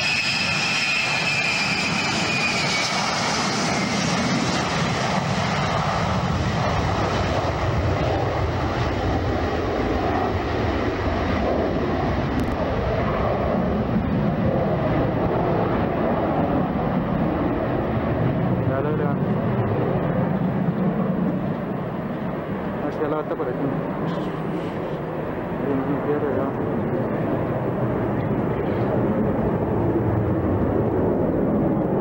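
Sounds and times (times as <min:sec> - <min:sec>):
jet engines whining and roaring: 0:00.0 - 0:32.0.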